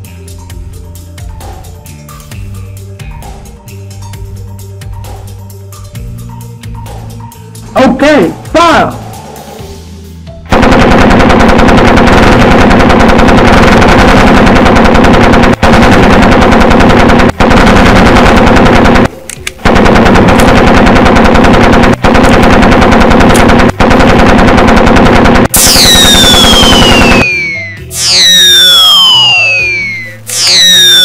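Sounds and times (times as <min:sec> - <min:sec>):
automatic machine-gun fire: 0:10.5 - 0:27.4.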